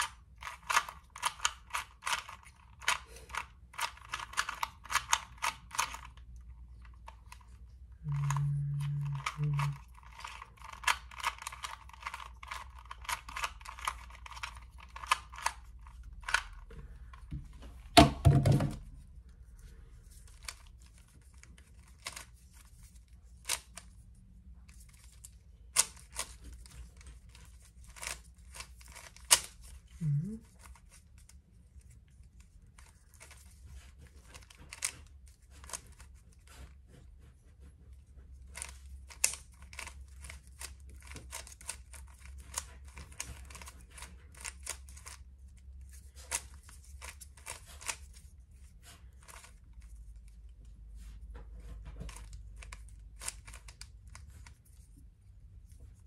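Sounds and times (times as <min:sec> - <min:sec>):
puzzle cube clicking: 0:00.0 - 0:06.2, 0:07.0 - 0:16.7, 0:24.7 - 0:30.8, 0:38.6 - 0:45.2, 0:46.0 - 0:48.2, 0:52.1 - 0:54.8.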